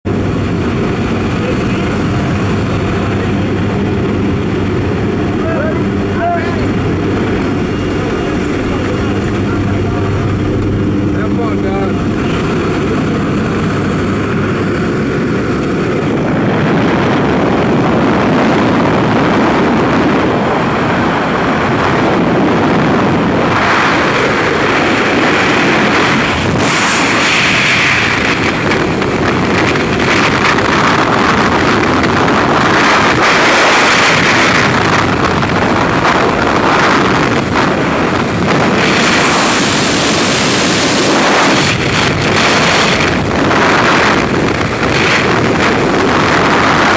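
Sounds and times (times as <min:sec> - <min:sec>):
plane engine and propeller drone: 0:00.0 - 0:46.9
wind rushing over microphone: 0:00.0 - 0:46.9.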